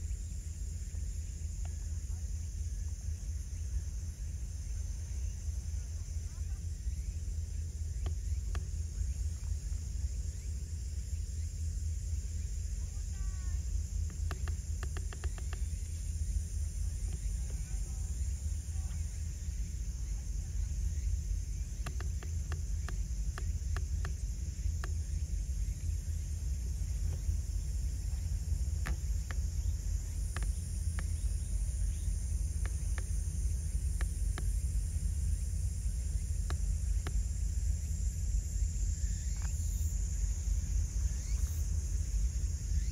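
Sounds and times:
low rumble: 0.0 - 42.9
sharp clicks: 14.1 - 15.7, 21.8 - 24.2, 30.2 - 31.3.

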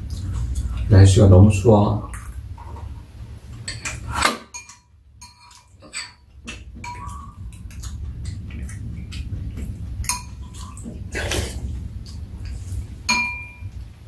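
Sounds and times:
low steady hum: 0.0 - 14.0
spoons clinking on ceramic bowls: 3.7 - 7.3, 10.1 - 10.6, 13.1 - 13.7.

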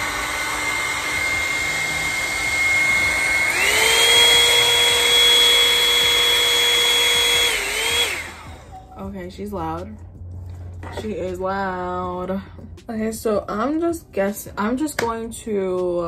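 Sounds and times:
hot-air brush dryer whine: 0.0 - 8.9.

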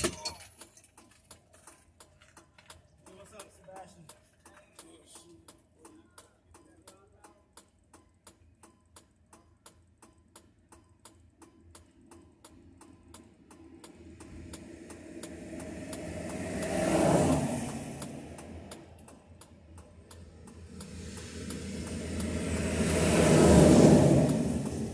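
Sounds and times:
hazard flasher ticking: 4.8 - 24.9
vehicle passing on highway: 11.6 - 24.9.

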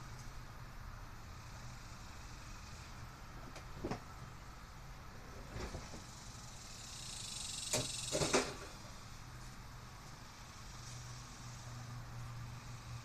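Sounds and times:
workbench scraping across floor: 5.2 - 6.1.

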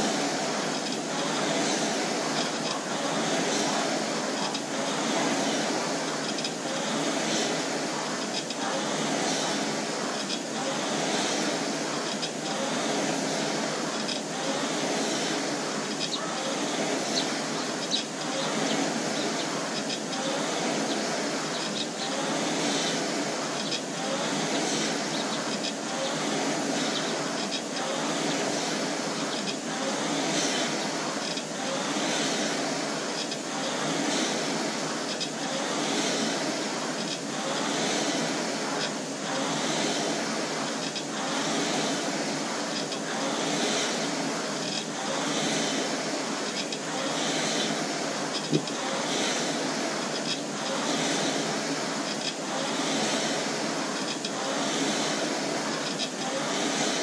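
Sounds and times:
rowing machine flywheel whooshing: 0.0 - 57.0.

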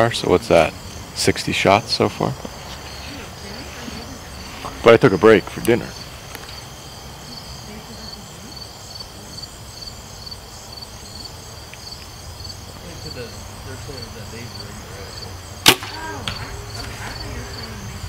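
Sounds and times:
crickets chirping: 0.0 - 18.0
bow string crack: 15.6 - 17.0.

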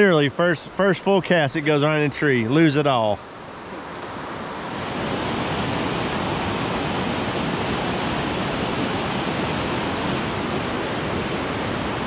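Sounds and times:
creek rushing over rapids: 0.0 - 12.0.

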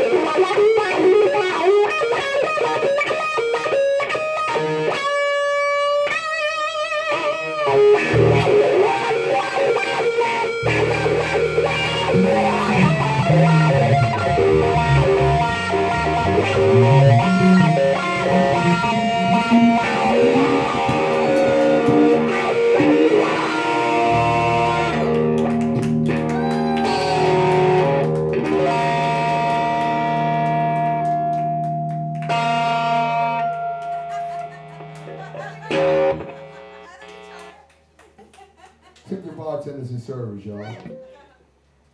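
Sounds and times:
electric guitar solo: 0.0 - 37.7, 40.5 - 41.2
bass line: 7.7 - 9.2, 10.5 - 33.8.

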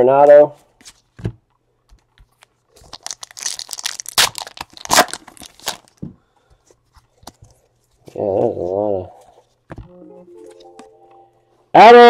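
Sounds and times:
card pack wrapper tearing: 2.8 - 6.0.

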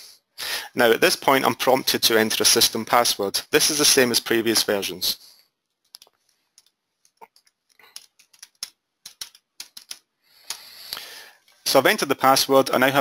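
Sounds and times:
keyboard typing clicks: 5.9 - 10.0.

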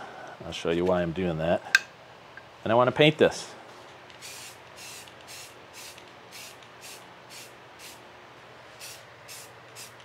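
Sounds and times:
spray paint can hissing: 4.2 - 8.0, 8.8 - 10.0.

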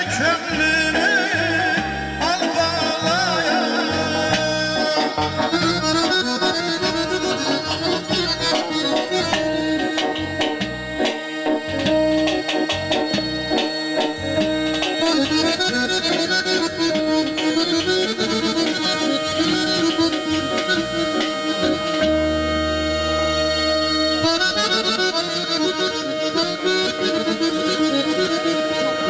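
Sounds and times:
drum and bass beat: 0.0 - 22.5
accordion playing: 0.0 - 29.0.

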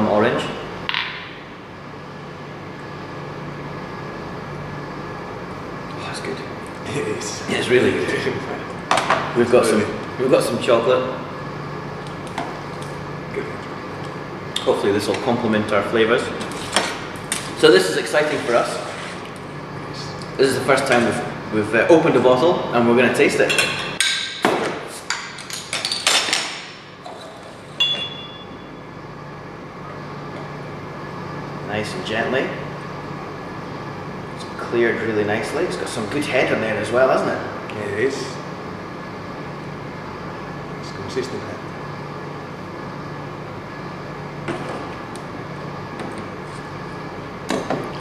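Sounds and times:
steady background hum: 0.0 - 48.0
ringing glass clink: 27.8 - 28.7.

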